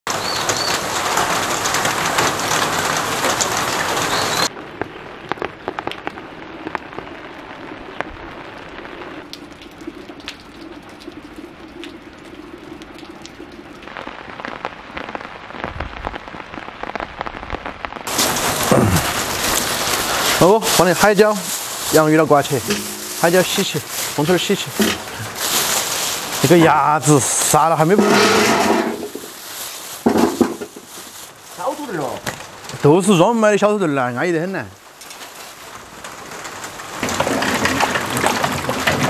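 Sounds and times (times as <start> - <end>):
rain falling: 0.1 - 39.0.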